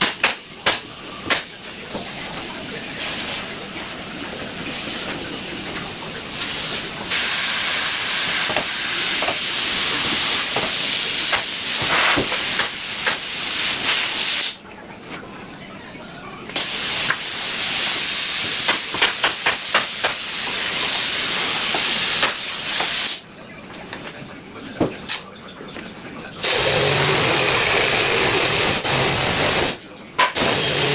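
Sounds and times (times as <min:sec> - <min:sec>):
cordless power tool hissing: 0:30.4 - 0:30.9.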